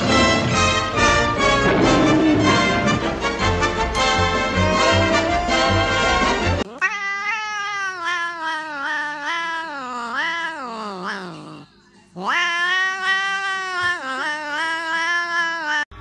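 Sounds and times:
cat yowling: 6.7 - 16.0.

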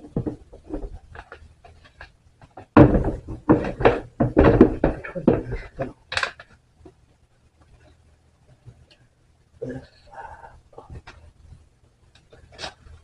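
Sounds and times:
plastic parts clattering: 2.8 - 6.5.

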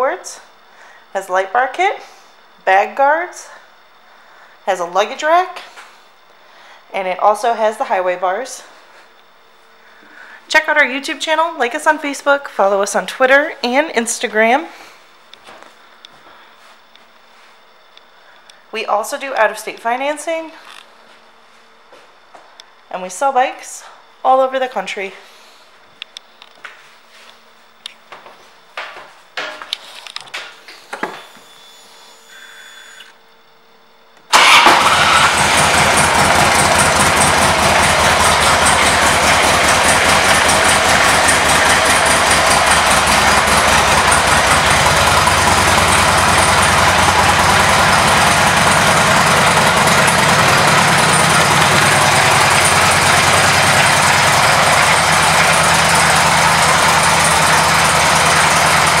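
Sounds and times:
motorcycle engine starting and idling: 34.3 - 59.0.

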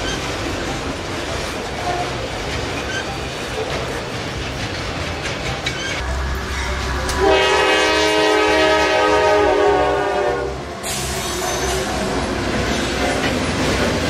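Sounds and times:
freight train wheels rumbling: 0.0 - 14.0
locomotive air horn: 6.4 - 11.0.

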